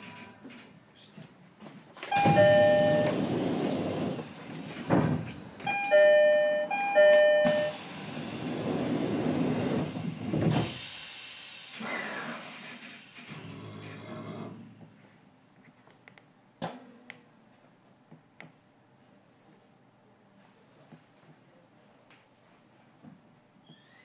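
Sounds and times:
train door chime ding-dong: 0:02.1 - 0:03.2, 0:05.6 - 0:07.8.

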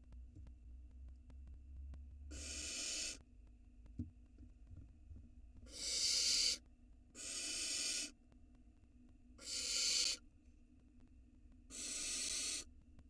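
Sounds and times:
owl chicks hissing: 0:02.3 - 0:03.2, 0:05.7 - 0:06.6, 0:07.2 - 0:08.2, 0:09.4 - 0:10.2, 0:11.7 - 0:12.7.

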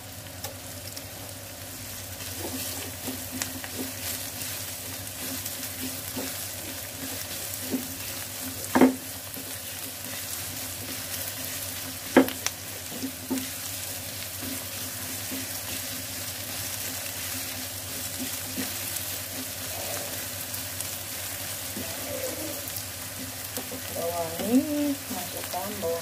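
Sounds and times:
onions sizzling in oil: 0:00.0 - 0:26.0
spatula knocking on pan: 0:07.1 - 0:09.6, 0:12.0 - 0:13.6.

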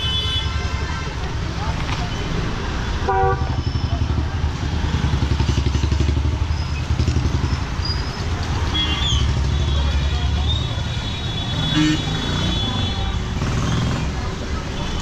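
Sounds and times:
motorcycle engines running: 0:03.4 - 0:15.0.

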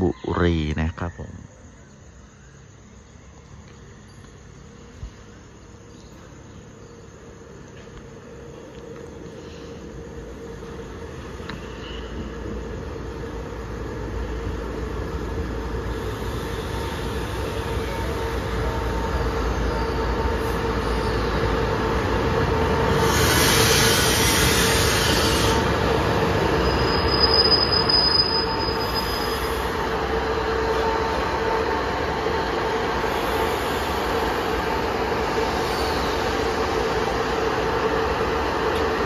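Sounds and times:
diesel train running: 0:01.6 - 0:39.0
brake squeal: 0:11.4 - 0:12.6, 0:15.9 - 0:21.6, 0:22.9 - 0:29.9
loud air hiss: 0:22.9 - 0:25.6, 0:33.0 - 0:37.2.

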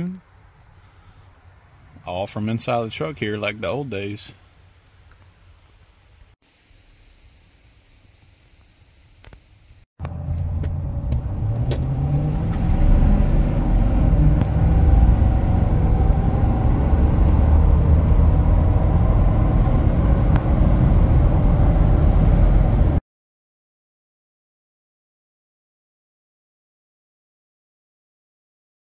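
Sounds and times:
diesel truck engine accelerating: 0:10.0 - 0:23.0.

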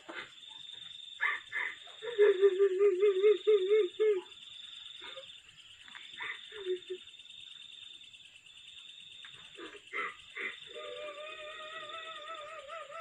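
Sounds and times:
crickets trilling: 0:00.0 - 0:13.0
faint voice sounds: 0:09.6 - 0:13.0.

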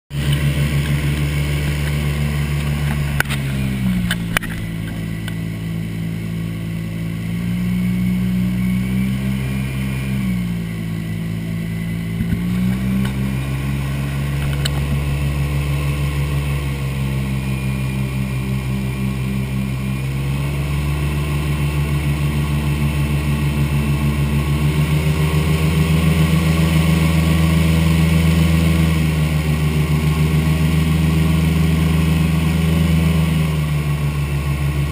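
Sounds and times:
airboat engine drone: 0:00.1 - 0:34.9.

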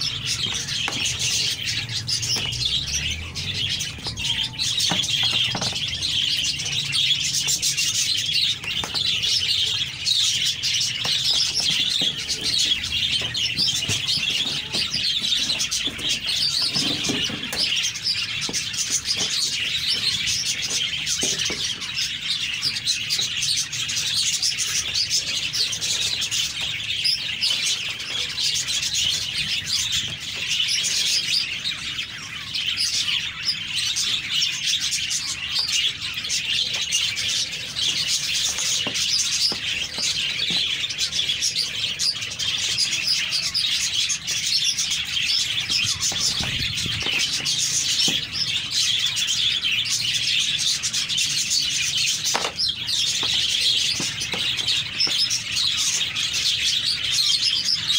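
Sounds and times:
small birds chirping: 0:00.0 - 0:57.9.

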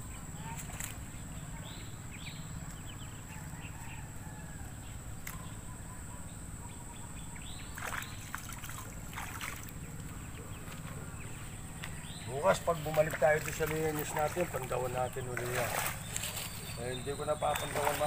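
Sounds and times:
pond water sloshing and splashing: 0:00.3 - 0:01.8, 0:07.3 - 0:18.0.

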